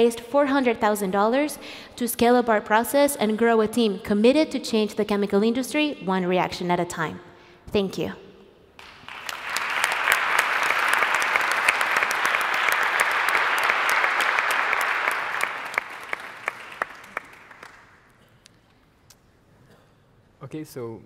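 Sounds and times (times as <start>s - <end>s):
audience applauding: 8.8s - 18.1s.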